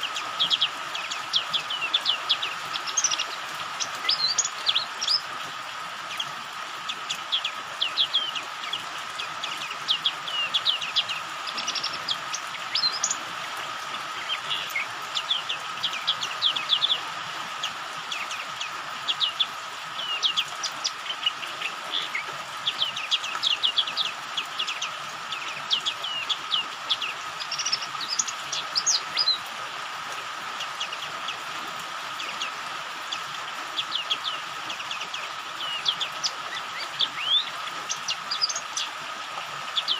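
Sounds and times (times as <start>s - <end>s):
high bird chirps and twitters: 0.0s - 5.3s, 6.1s - 13.2s, 18.1s - 29.4s, 33.8s - 39.0s
rain hiss: 0.0s - 39.9s.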